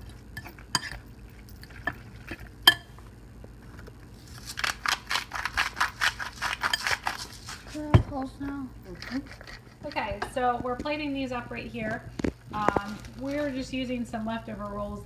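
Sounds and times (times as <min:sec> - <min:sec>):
spoon scraping ceramic bowl: 0:00.0 - 0:02.9, 0:05.8 - 0:07.8.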